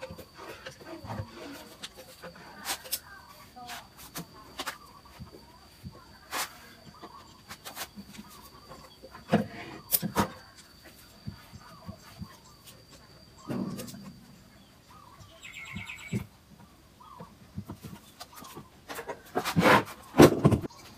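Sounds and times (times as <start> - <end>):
bird chirps: 11.2 - 17.3.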